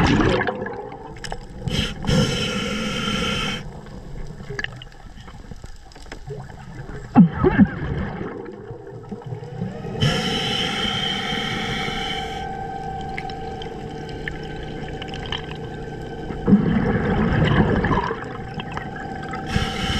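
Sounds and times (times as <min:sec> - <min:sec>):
exhaust bubbles gurgling: 0:00.0 - 0:05.6, 0:06.2 - 0:19.9
hissing regulator inhalation: 0:01.6 - 0:03.8, 0:09.6 - 0:19.9.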